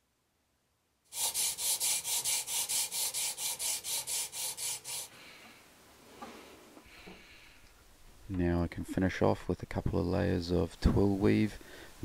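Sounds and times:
sanding by hand on sandpaper: 0:01.1 - 0:05.1.

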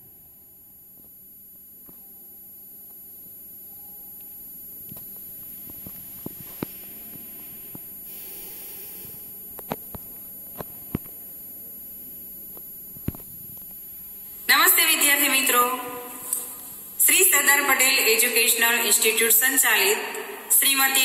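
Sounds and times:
hiss: 0:07.3 - 0:09.4.

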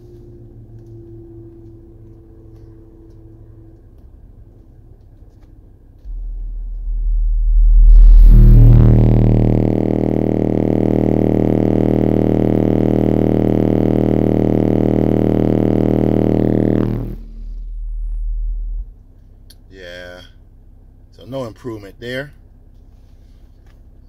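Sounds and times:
subwoofer buzzing drone: 0:00.0 - 0:04.4, 0:06.0 - 0:21.7
faint low rumble: 0:00.0 - 0:24.0.

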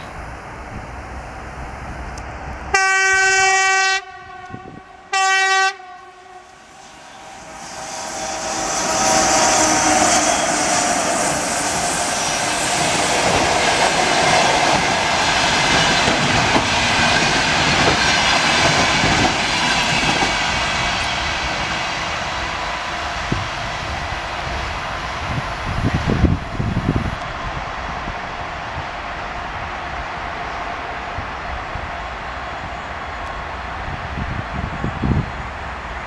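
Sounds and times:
passenger train running past: 0:00.0 - 0:36.0
locomotive horn blasts: 0:02.7 - 0:11.2.

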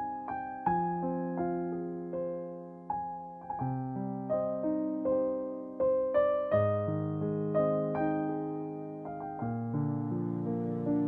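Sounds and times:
solo piano: 0:00.0 - 0:11.0.

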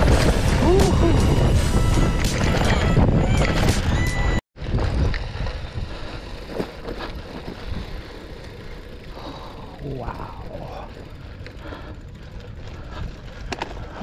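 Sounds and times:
wind on microphone: 0:00.0 - 0:06.1
bike clicks and knocks: 0:00.0 - 0:09.5, 0:11.4 - 0:14.0
bike tyres rolling on dirt: 0:00.0 - 0:14.0.

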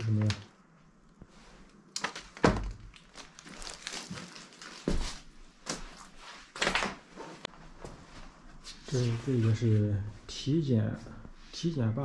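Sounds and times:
rustling: 0:00.0 - 0:09.8
footsteps crunching on debris: 0:03.1 - 0:05.9.

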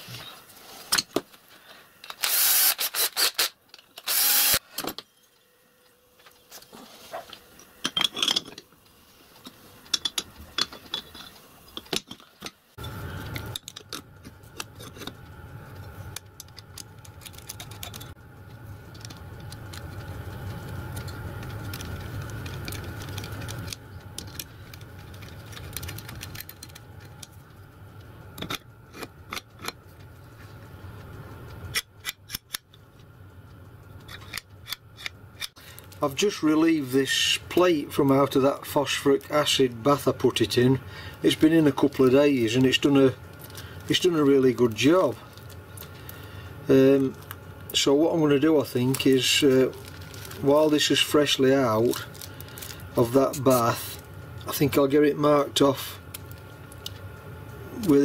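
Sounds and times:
steady mechanical hum: 0:00.0 - 0:58.0
metal parts clicking and clattering: 0:07.8 - 0:08.7.

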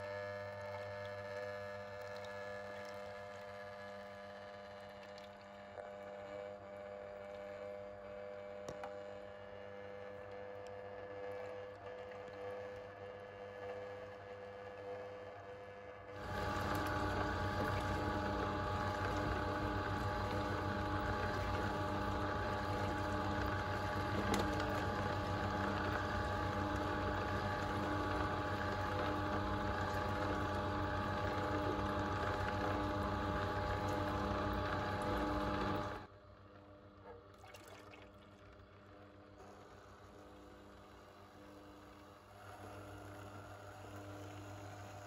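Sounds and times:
juicer motor hum: 0:00.0 - 0:45.0
juice churning: 0:00.8 - 0:03.5, 0:16.2 - 0:36.1, 0:37.2 - 0:40.8.

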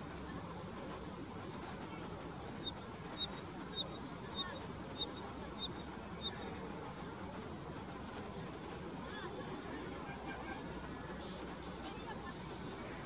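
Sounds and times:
bird singing repetitive song: 0:02.6 - 0:06.8.

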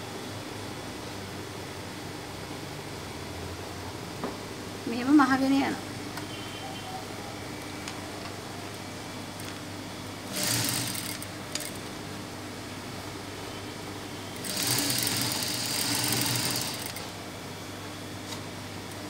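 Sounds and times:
sewing machine stitching: 0:10.3 - 0:11.8, 0:14.4 - 0:17.0.

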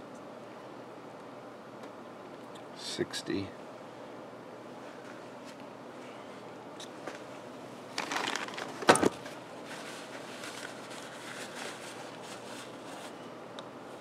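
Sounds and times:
paper towel crinkle: 0:08.0 - 0:13.2
paper towel rustling: 0:08.0 - 0:13.2.

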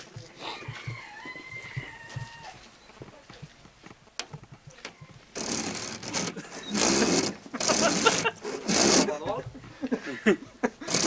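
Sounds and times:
rooster crowing: 0:00.4 - 0:02.7
loud rough rasping noise: 0:05.4 - 0:09.4.

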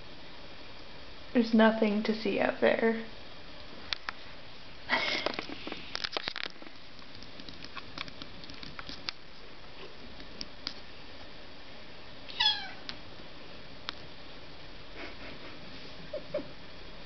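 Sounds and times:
cat meowing: 0:12.3 - 0:12.8.

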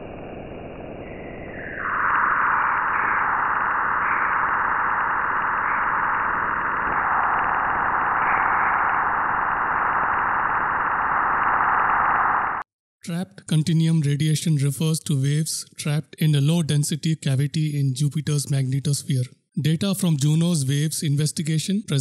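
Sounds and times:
steady rushing noise: 0:00.0 - 0:12.6.

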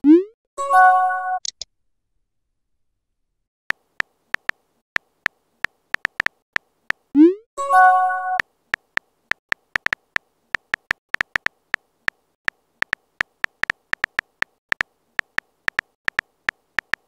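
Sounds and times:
phone keyboard typing clicks: 0:04.0 - 0:06.4, 0:08.8 - 0:17.0.

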